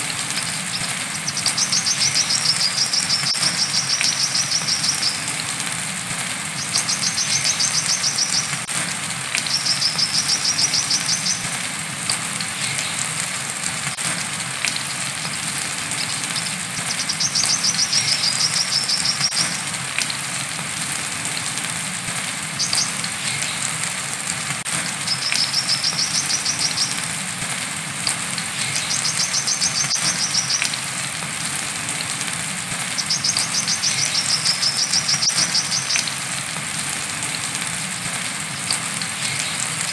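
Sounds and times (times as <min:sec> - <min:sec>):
rain hiss: 0:00.0 - 0:39.9
bird singing high trills: 0:00.3 - 0:05.3, 0:06.6 - 0:08.5, 0:09.4 - 0:11.5, 0:16.0 - 0:19.4, 0:28.6 - 0:30.8, 0:33.0 - 0:36.1.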